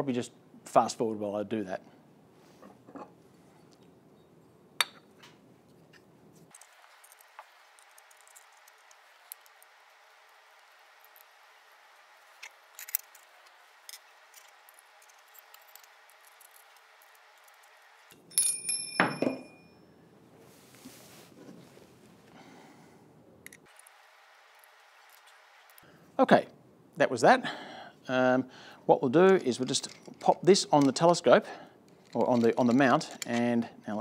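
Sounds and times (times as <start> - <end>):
clicks and clinks of metal hardware: 12.4 - 13.3, 29.6 - 31.0.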